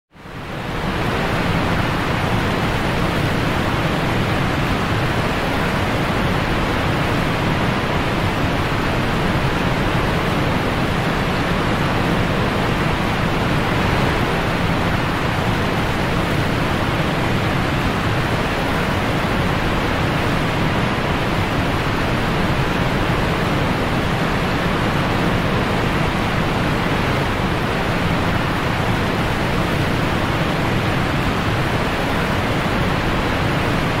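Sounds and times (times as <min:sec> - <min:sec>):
whitewater rapids rushing: 0:00.4 - 0:34.0.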